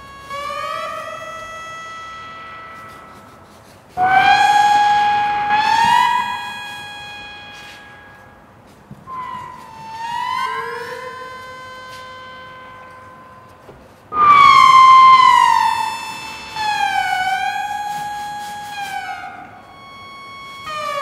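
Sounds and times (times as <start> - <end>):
synthesizer tones: 14.1 - 17.2.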